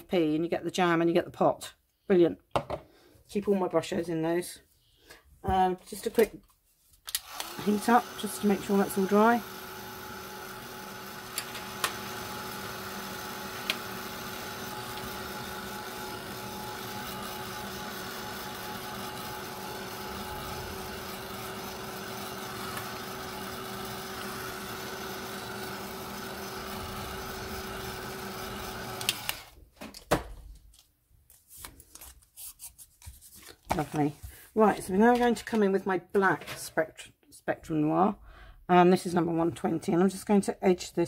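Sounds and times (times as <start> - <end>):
heat tool motor humming with rushing air: 7.2 - 29.5.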